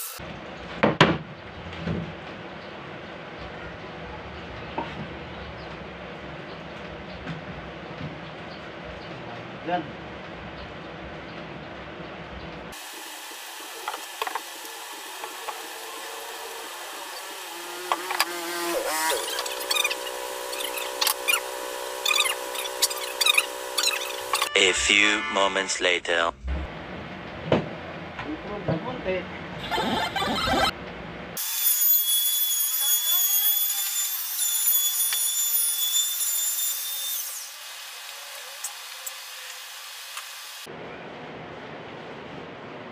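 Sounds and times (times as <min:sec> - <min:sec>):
power tool cutting plywood: 0:12.8 - 0:24.5, 0:31.4 - 0:40.4
squeaky scrape of wood on wood: 0:17.7 - 0:24.5, 0:29.6 - 0:30.7.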